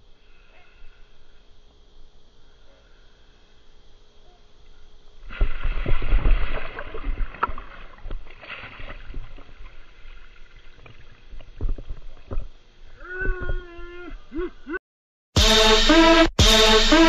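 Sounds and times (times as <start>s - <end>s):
diver splashing into water: 5.3s - 10.6s
water churning and sloshing: 5.3s - 12.8s.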